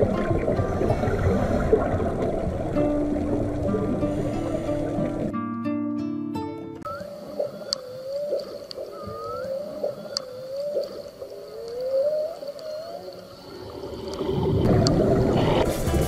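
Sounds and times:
whale squeals: 6.9 - 13.6
sharp clicks: 7.4 - 13.2
rush of noise: 13.4 - 16.0.

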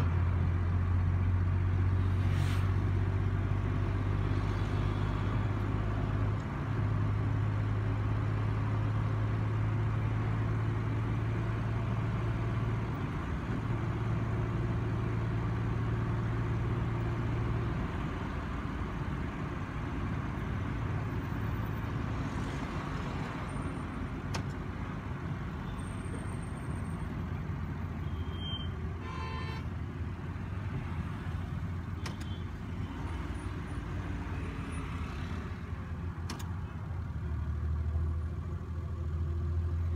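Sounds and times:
car road noise drone: 0.0 - 39.9
car horn honk: 28.0 - 29.7.

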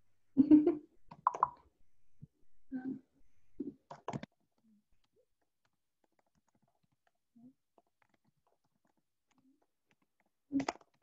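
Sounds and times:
sharp clicks: 1.1 - 1.6.

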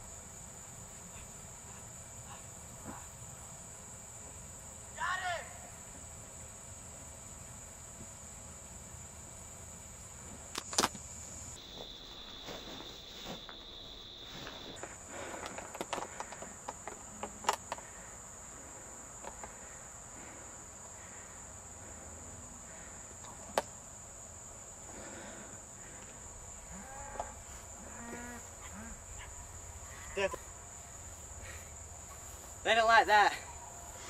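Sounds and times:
crickets chirping: 0.0 - 34.0
rustling crackles: 11.6 - 16.5.

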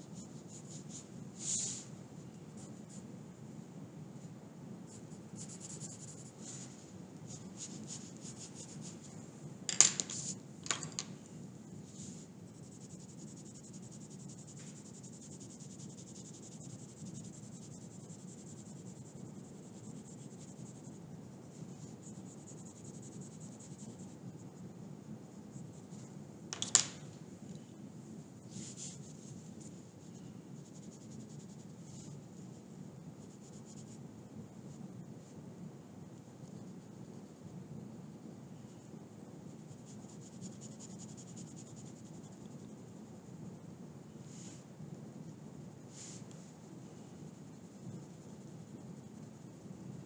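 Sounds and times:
pencil scratching on paper: 4.9 - 6.7, 7.3 - 9.1, 12.0 - 21.0, 28.6 - 32.2, 39.5 - 42.7.

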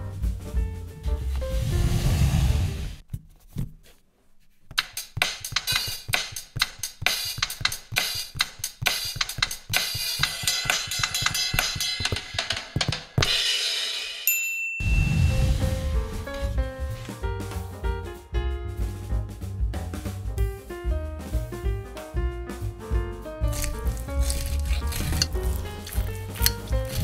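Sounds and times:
background music: 0.0 - 2.9, 15.0 - 27.0.

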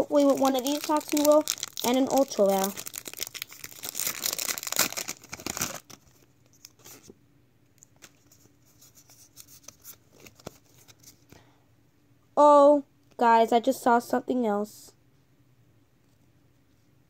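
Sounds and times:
foil wrapper tearing and crinkling: 0.0 - 7.0.

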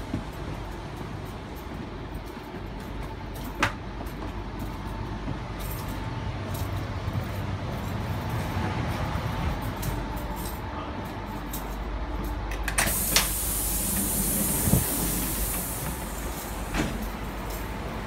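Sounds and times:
train interior low rumble: 0.0 - 18.0
high air hiss: 12.8 - 17.3.

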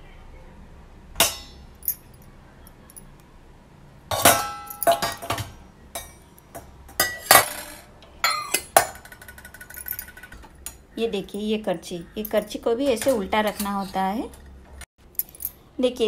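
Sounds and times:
plates and utensils clinking: 4.1 - 10.8.

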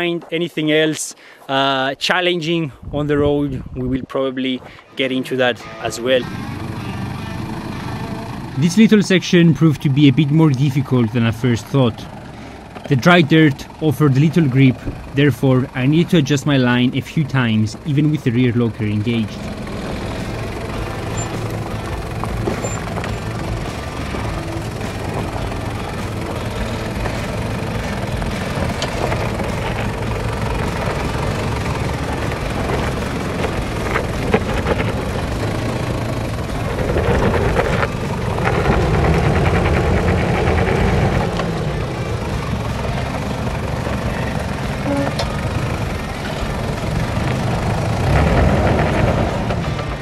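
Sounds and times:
engine pulling under load: 4.6 - 50.0.

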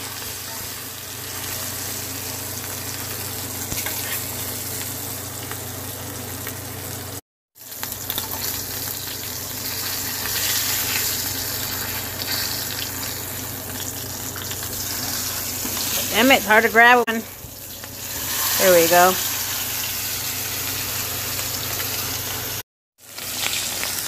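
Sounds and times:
steak sizzling in butter: 7.6 - 24.0.

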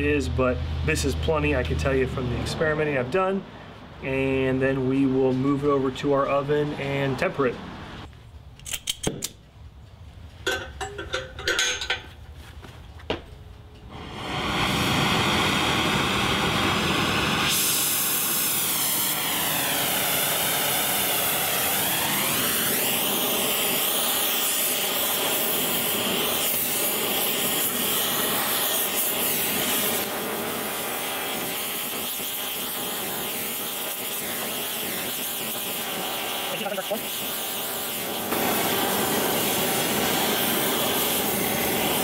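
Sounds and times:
cutting torch flame hissing: 13.9 - 42.0.

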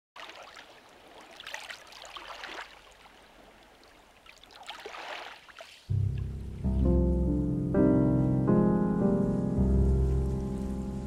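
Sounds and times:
water lapping among rocks: 0.2 - 5.9.

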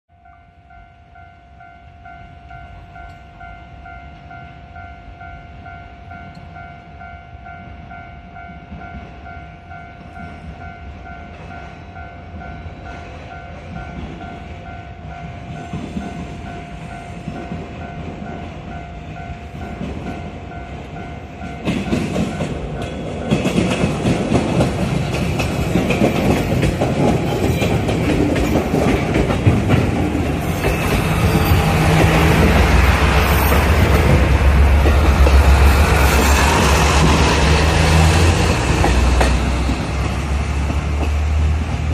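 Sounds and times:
trains running over tracks: 0.1 - 41.9.

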